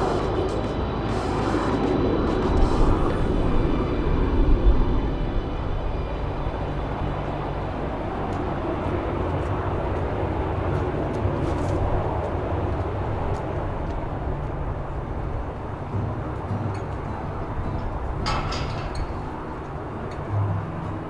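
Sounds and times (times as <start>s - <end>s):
jet airliner engines roaring: 0.0s - 21.0s.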